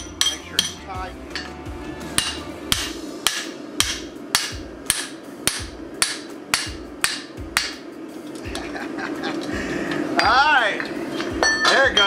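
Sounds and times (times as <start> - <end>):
hammer striking metal on anvil: 0.0 - 7.8, 10.2 - 12.0
steady background hum: 0.0 - 12.0.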